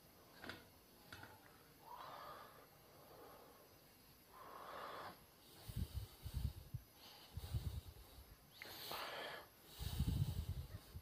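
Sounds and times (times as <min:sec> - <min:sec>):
breathing close to microphone: 0:01.9 - 0:11.0.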